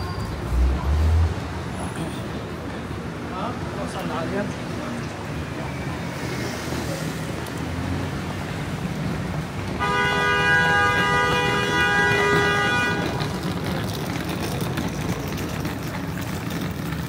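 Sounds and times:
street traffic: 0.0 - 17.0
vehicle horn long blast: 9.8 - 13.2.

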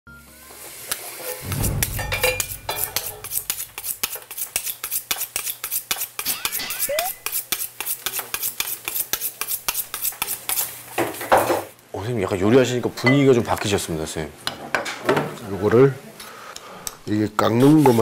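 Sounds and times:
low whoosh: 1.4 - 4.0.

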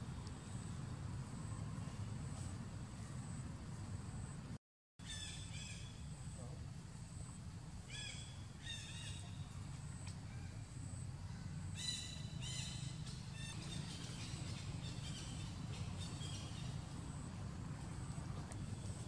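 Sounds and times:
low outdoor rumble: 0.0 - 19.0.

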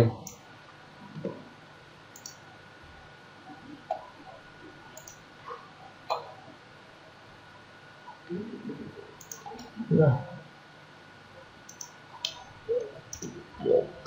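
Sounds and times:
computer mouse clicks: 2.1 - 2.4, 5.0 - 5.2, 9.2 - 9.7, 11.7 - 13.4.

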